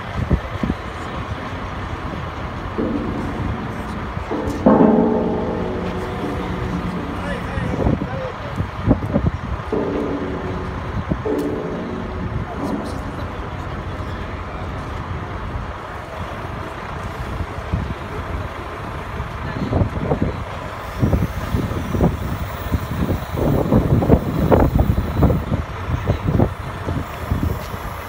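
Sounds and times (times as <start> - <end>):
crane diesel engine running: 0.0 - 28.0
low rumbles: 0.9 - 20.6.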